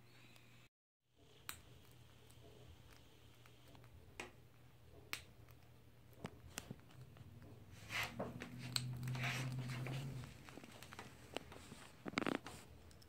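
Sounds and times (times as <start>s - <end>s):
squirrel gnawing on wood: 1.3s - 13.0s
steady low hum: 1.5s - 13.0s
scratchy rustle: 7.7s - 12.8s.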